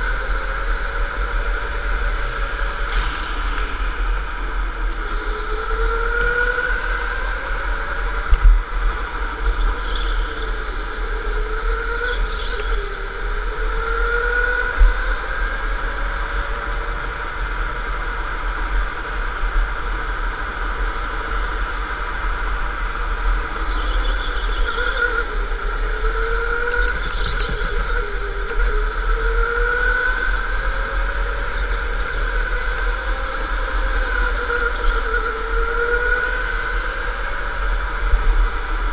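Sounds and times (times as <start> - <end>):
steady low rumble: 0.0 - 10.8.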